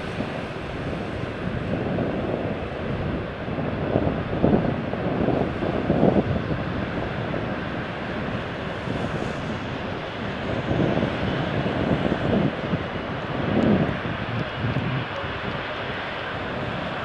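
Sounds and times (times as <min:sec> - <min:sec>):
jet engines taxiing: 0:00.0 - 0:17.0
wind buffeting microphone: 0:00.0 - 0:17.0.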